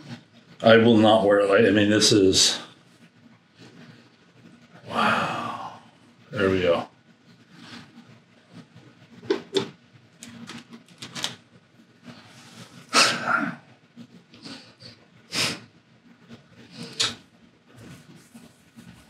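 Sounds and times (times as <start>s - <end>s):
small clicks and rustles: 7.3s - 12.9s
man sniffing through nose: 14.4s - 15.7s.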